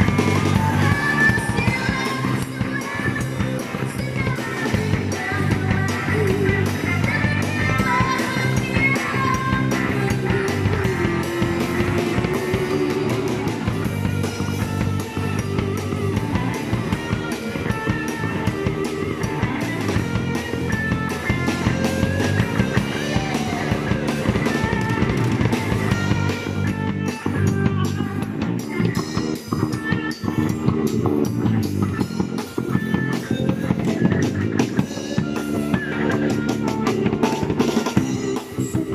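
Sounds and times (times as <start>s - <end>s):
bass guitar: 0.0s - 38.9s
drum kit: 0.0s - 38.9s
electric guitar: 0.0s - 38.9s
woman singing into microphone: 0.4s - 11.4s.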